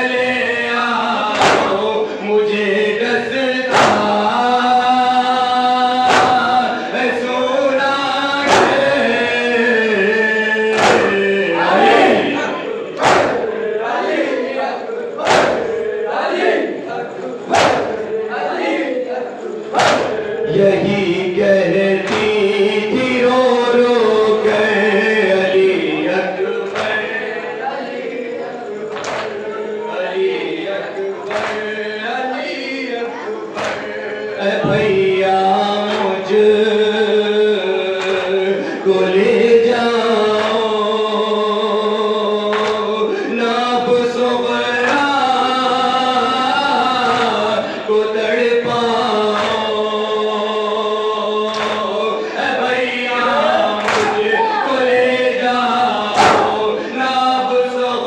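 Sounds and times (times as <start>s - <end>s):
men chanting in unison: 0.0s - 58.0s
hands slapping chest: 1.3s - 1.8s, 6.1s - 6.5s, 10.8s - 11.2s, 15.2s - 15.6s, 19.8s - 20.1s, 29.0s - 29.4s, 53.8s - 54.2s.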